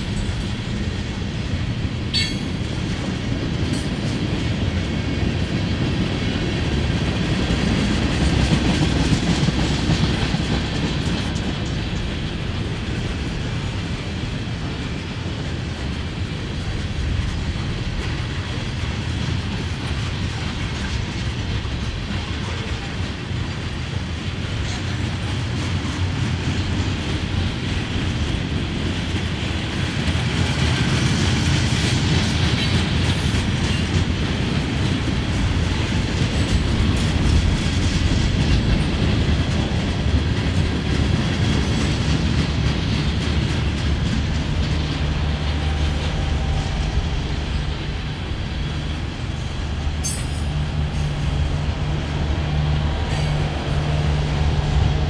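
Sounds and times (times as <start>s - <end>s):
freight train rumbling: 0.0s - 55.0s
wheels clicking over rail joints: 0.0s - 55.0s.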